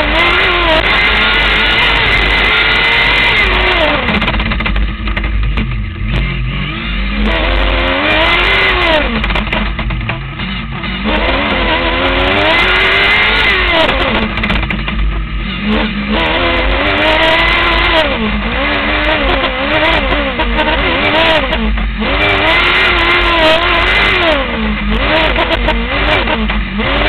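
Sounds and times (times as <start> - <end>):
race car engine revving: 0.0 - 27.0.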